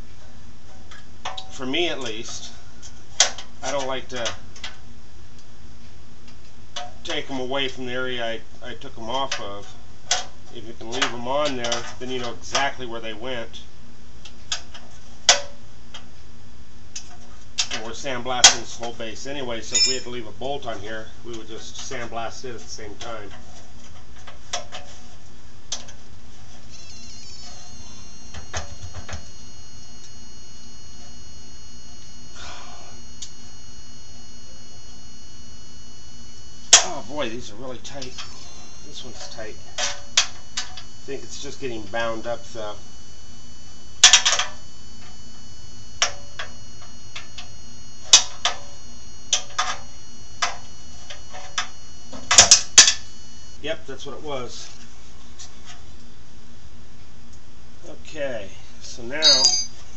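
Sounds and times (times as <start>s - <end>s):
steady low hum: 0.0s - 59.9s
faint high whistle-like tone: 19.7s - 20.2s, 26.7s - 53.6s, 59.2s - 59.8s.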